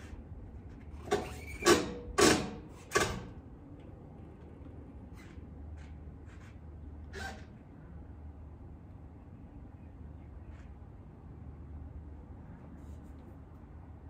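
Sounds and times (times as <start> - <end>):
bike and rack clattering: 0.0 - 3.4.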